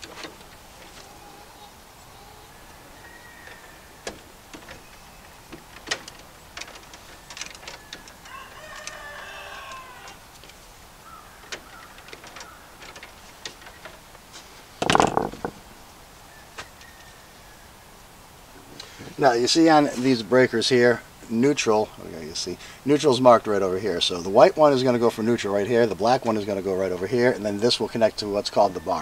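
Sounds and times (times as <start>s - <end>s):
rooster crowing: 1.2s - 4.0s, 7.8s - 10.3s.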